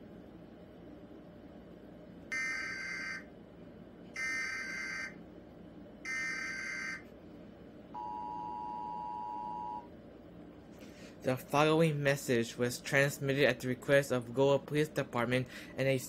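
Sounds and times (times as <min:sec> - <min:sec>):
two-tone attention signal: 0:08.0 - 0:09.9.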